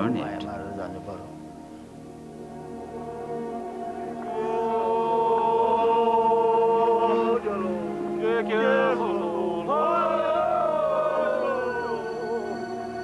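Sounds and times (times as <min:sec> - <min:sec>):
low steady drone: 0:00.0 - 0:13.0
voices chanting long notes: 0:00.0 - 0:13.0.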